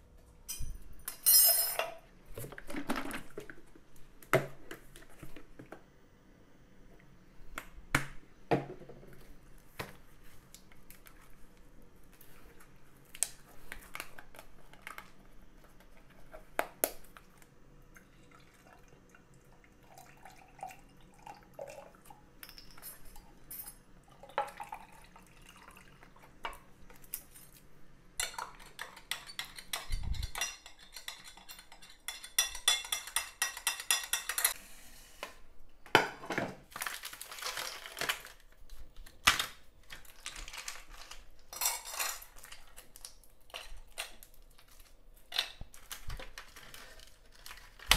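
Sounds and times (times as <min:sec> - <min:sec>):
utensils clinking on dishes: 0:00.4 - 0:02.0, 0:22.4 - 0:23.8, 0:28.2 - 0:34.6, 0:41.5 - 0:42.7.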